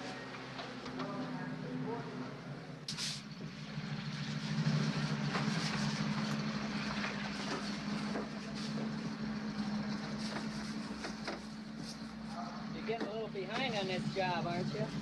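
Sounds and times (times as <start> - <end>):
engine-like hum: 0.0 - 15.0
knocks and scrapes: 4.4 - 13.8.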